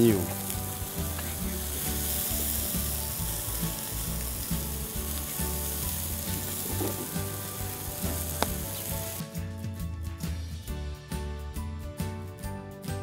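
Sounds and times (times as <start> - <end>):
meat sizzling over charcoal: 0.0 - 9.6.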